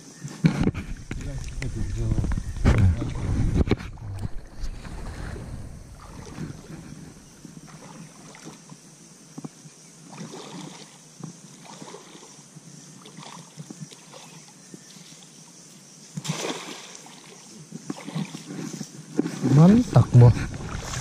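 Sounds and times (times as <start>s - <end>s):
river water sloshing: 0.6s - 8.8s, 10.0s - 21.0s
splashes of person wading: 2.8s - 8.7s, 10.0s - 12.4s, 13.0s - 14.5s, 16.2s - 21.0s.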